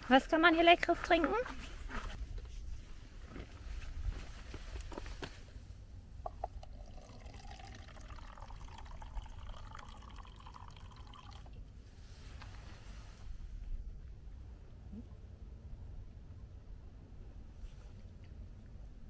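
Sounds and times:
drink pouring into plastic cup: 6.3s - 11.6s.

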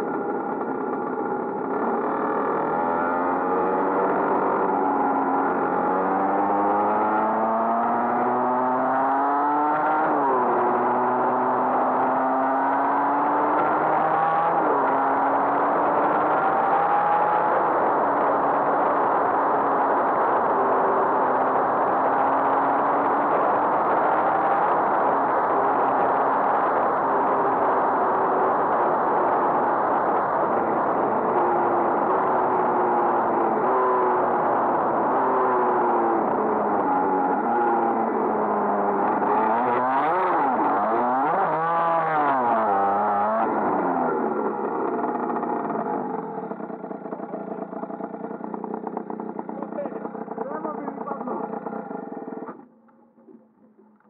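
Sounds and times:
go-kart engine running: 0.0s - 54.0s
road noise: 0.0s - 54.0s.

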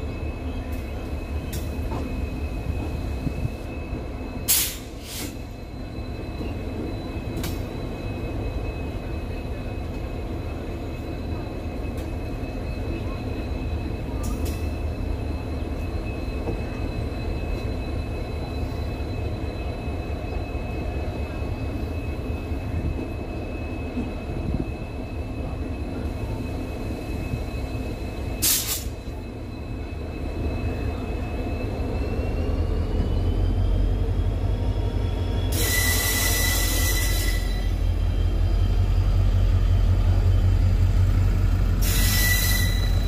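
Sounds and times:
train wheels rumbling on rails: 0.0s - 43.0s
thin high squeal: 35.2s - 39.2s, 41.6s - 43.0s.

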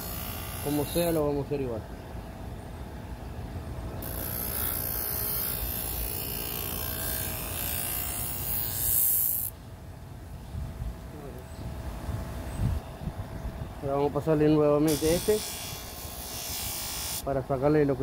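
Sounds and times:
electric motor humming: 0.0s - 1.2s, 4.0s - 9.5s, 14.9s - 17.2s.

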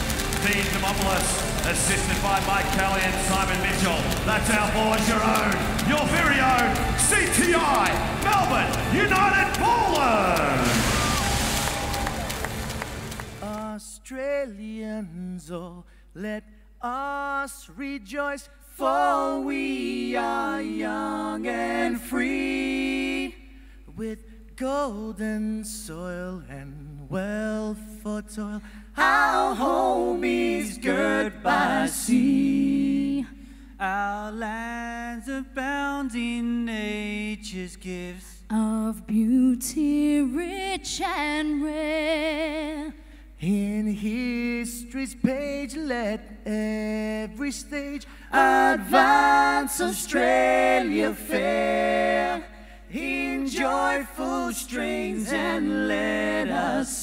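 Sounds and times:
group of voices singing: 0.0s - 12.3s, 16.2s - 24.2s, 28.4s - 37.0s, 42.2s - 57.0s.

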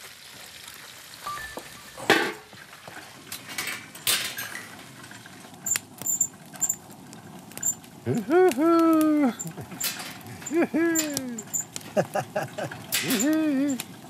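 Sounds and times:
fish grilling over wood fire: 0.0s - 14.0s
short high squeaks: 5.6s - 6.8s, 7.5s - 7.8s, 9.4s - 11.8s.

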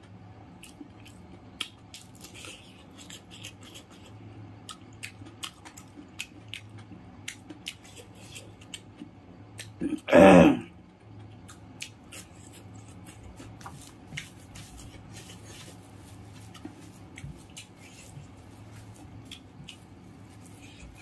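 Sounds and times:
chewing clicks: 0.5s - 9.8s, 11.0s - 13.6s, 19.2s - 19.9s
fingers mixing rice: 11.8s - 21.0s.

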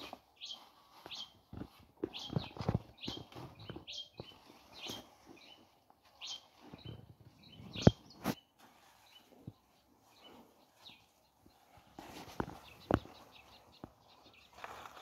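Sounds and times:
leaves rustling: 0.0s - 3.5s, 7.8s - 15.0s
birds chirping: 0.0s - 15.0s.

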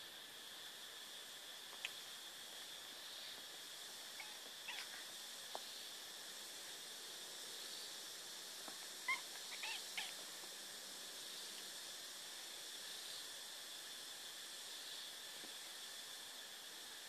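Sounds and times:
steady hiss: 0.0s - 17.0s
kitten squeaking: 4.2s - 5.0s, 9.1s - 10.1s.

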